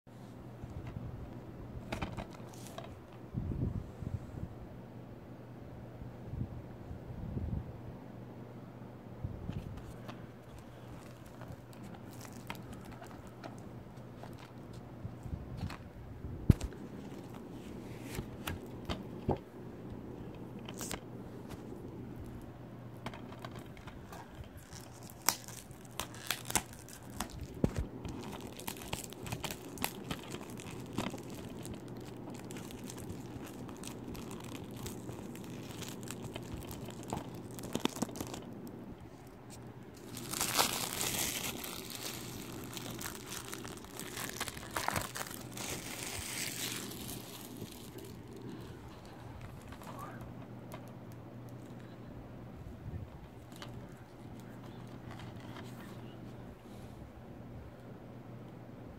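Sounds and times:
plastic wrapping crinkling: 9.6 - 15.8, 16.5 - 19.4, 23.0 - 50.9
plastic tearing: 9.8 - 14.7, 23.1 - 38.7, 39.5 - 50.2.

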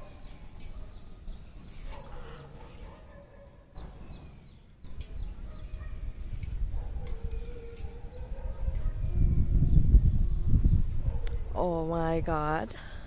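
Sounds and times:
birds chirping faintly: 0.0 - 12.6
wind buffeting microphone: 3.7 - 13.0.

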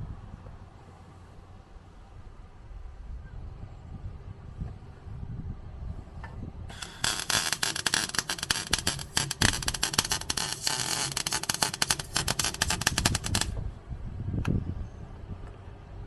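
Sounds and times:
arc welder crackling: 6.7 - 13.6.

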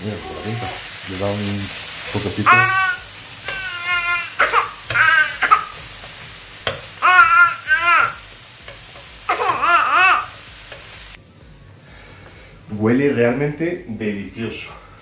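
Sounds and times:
meat sizzling in a pan: 0.0 - 11.2
high-pitched vocal cries: 2.4 - 5.8, 6.9 - 8.3, 9.2 - 10.4.

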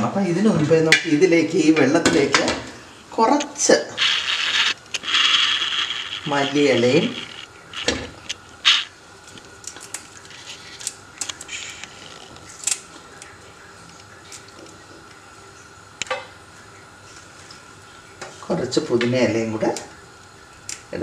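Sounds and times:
herbs rustling: 3.6 - 13.1
small kitchen clicks: 16.0 - 16.4.

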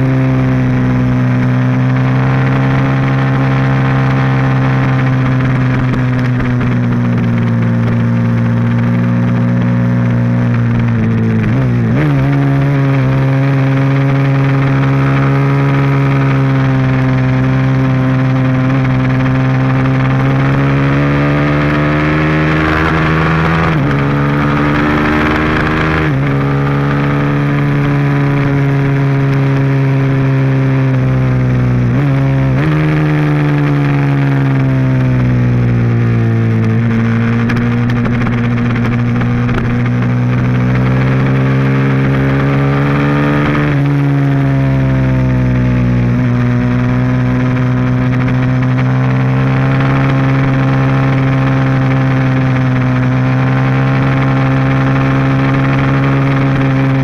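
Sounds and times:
motorcycle engine racing: 0.0 - 57.0
wind rush: 33.2 - 44.3.

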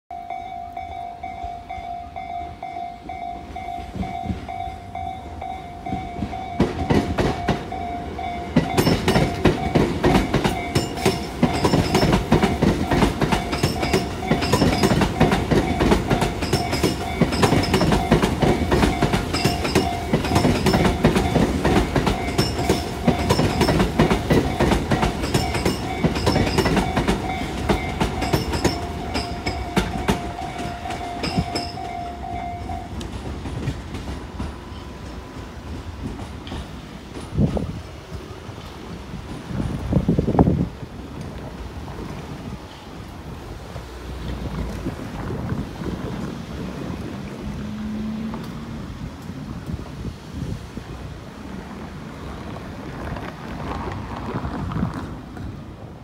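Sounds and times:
thin high tone: 0.1 - 33.0
electric train passing: 0.1 - 56.0
train wheels clattering over rail joints: 5.7 - 37.9.

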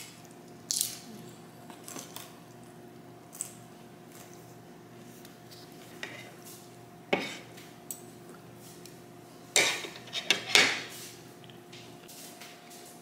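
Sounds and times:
cutlery clinking and scraping on plate: 7.2 - 7.6, 9.6 - 10.9.

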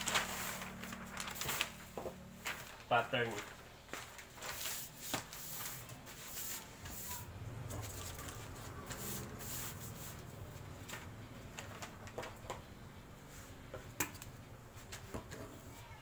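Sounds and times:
paper rustling and crackling: 0.0 - 12.7.

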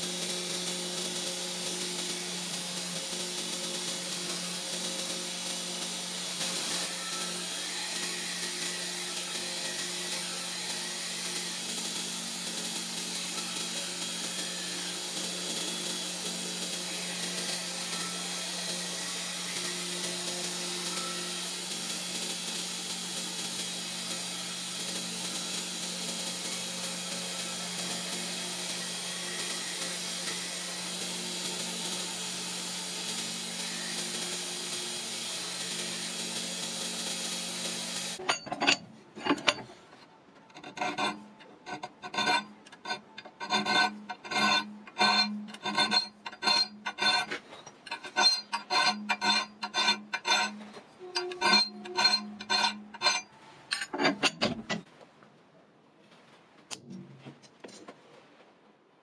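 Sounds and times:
belt grinder grinding steel blade: 0.0 - 31.1, 33.9 - 39.8, 40.4 - 54.8
hand file rasping steel: 38.2 - 39.8, 40.5 - 54.8.

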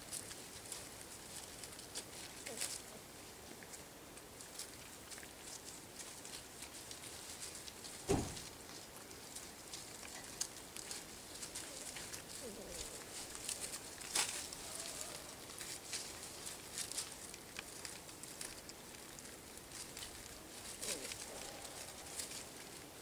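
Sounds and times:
paws rustling through dry leaves: 0.0 - 23.0
puppy whimpering: 11.6 - 13.6, 14.5 - 15.8.

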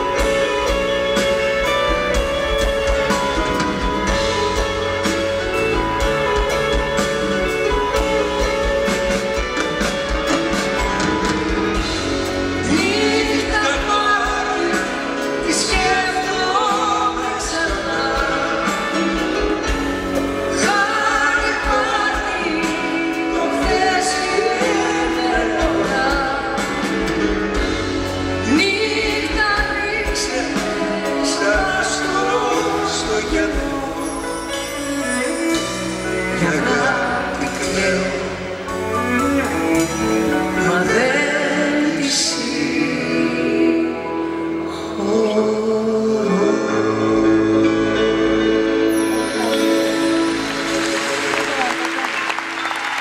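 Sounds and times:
pop band playing: 0.0 - 53.0
man and woman singing: 12.5 - 19.7, 20.4 - 27.6, 28.4 - 38.8, 39.6 - 49.6.

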